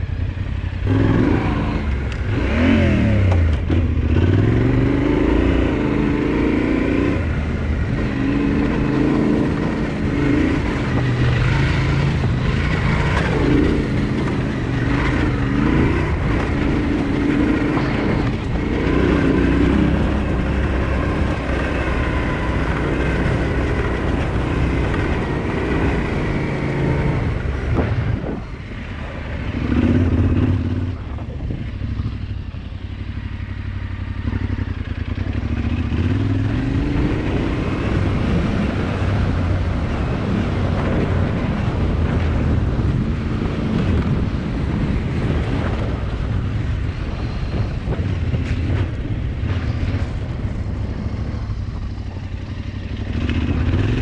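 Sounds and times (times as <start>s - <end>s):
off-road motorbike engine revving: 0.0s - 54.0s.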